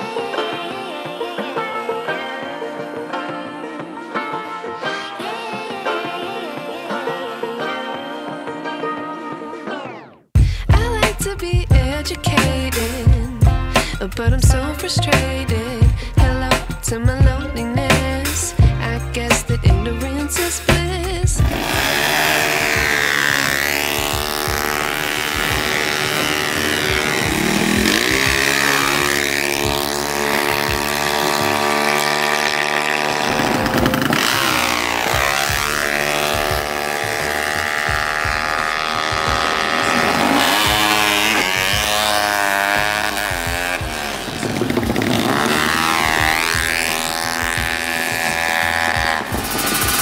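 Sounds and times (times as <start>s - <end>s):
motorcycle engines revving: 20.6s - 50.0s.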